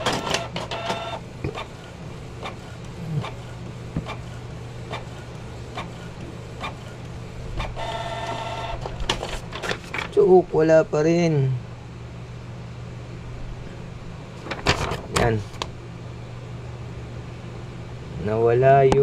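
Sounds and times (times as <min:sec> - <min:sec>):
inkjet printer clicking: 0:00.0 - 0:10.1
printer paper feed motor whirring: 0:00.0 - 0:10.2
printer low hum: 0:00.0 - 0:19.0.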